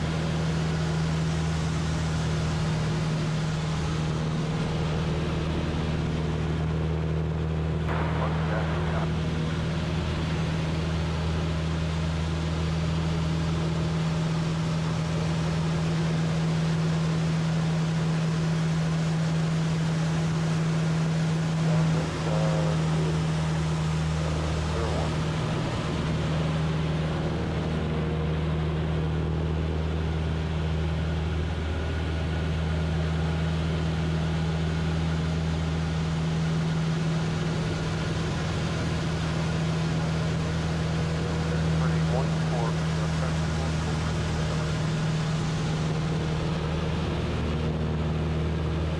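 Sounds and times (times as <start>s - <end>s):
propeller plane engine droning: 0.0s - 48.9s.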